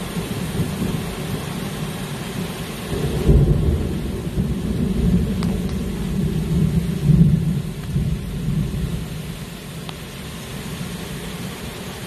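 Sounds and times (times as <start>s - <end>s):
heavy rain pouring: 0.0s - 12.0s
rolling thunder rumble: 2.9s - 9.4s.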